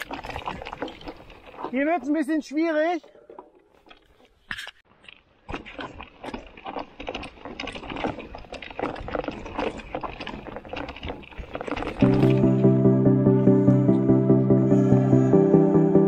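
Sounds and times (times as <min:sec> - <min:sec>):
bike rattling over bumps: 0:00.0 - 0:04.5, 0:05.3 - 0:12.6
bike tyres crunching over gravel: 0:00.0 - 0:12.7
music: 0:12.0 - 0:16.0.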